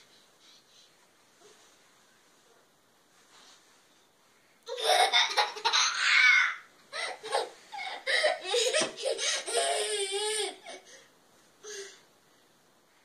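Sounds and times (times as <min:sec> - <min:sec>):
child laughing and squealing: 0:04.8 - 0:10.7.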